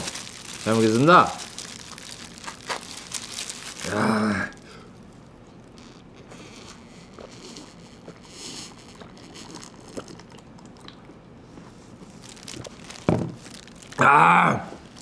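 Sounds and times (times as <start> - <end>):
person gulping a drink: 5.7 - 11.3.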